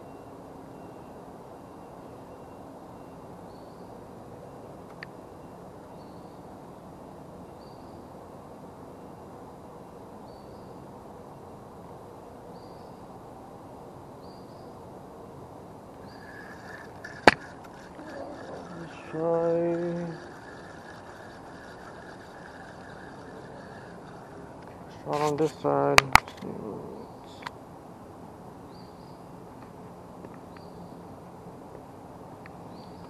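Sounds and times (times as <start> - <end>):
faint high chirp: 0.0 - 4.6, 16.0 - 25.1
spinning reel rattling: 16.0 - 25.3.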